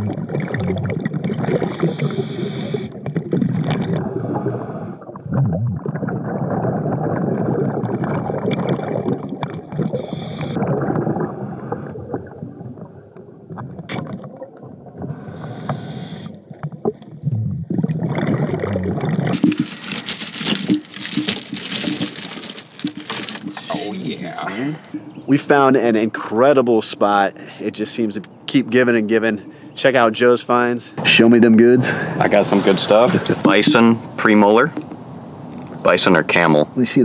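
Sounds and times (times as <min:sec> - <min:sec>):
gurgling bubbles: 0:00.0 - 0:19.6
breathing through air line: 0:01.6 - 0:02.9, 0:31.8 - 0:33.4
muffled underwater noise: 0:30.6 - 0:34.8.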